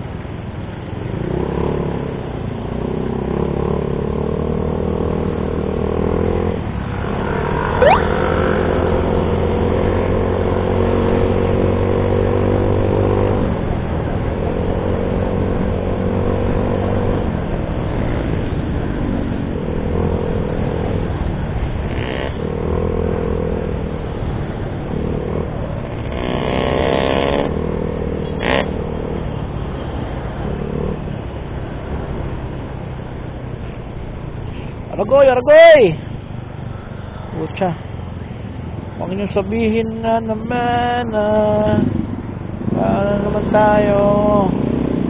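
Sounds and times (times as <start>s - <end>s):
wind and road noise: 0.0s - 45.0s
short sharp sound: 7.8s - 8.1s.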